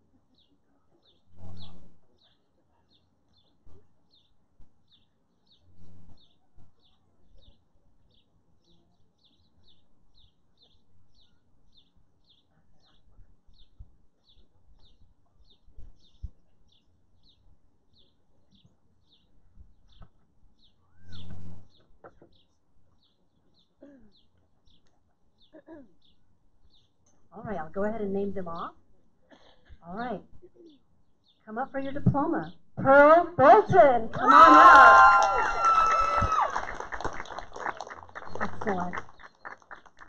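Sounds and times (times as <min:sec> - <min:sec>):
bird chirping: 0:00.3 - 0:27.2.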